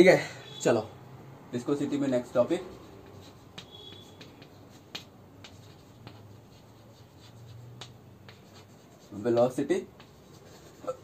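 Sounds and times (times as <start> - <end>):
chalk scraping on blackboard: 2.1 - 11.0
chalk tapping on board: 2.2 - 11.0.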